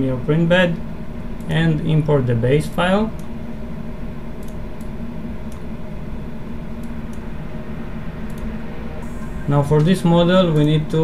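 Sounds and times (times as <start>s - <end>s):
low background hum: 0.0s - 11.0s
computer mouse clicks: 4.4s - 5.7s.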